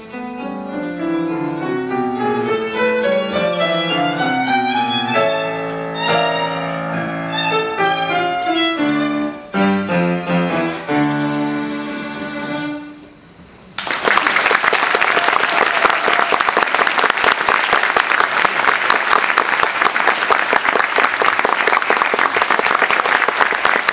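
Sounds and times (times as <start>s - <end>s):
violin and piano playing: 0.0s - 13.2s
audience applause: 13.8s - 23.9s.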